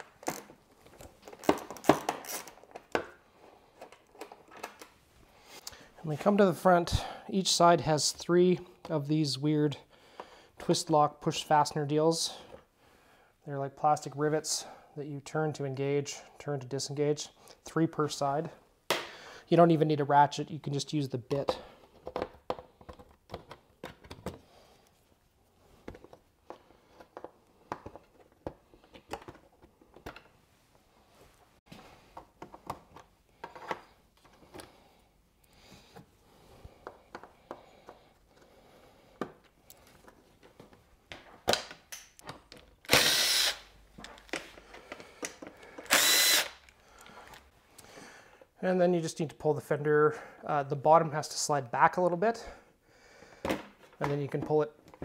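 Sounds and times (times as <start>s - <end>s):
plastic fasteners clicking: 21.4s - 24.4s
power driver spinning: 42.9s - 43.6s, 45.8s - 46.6s.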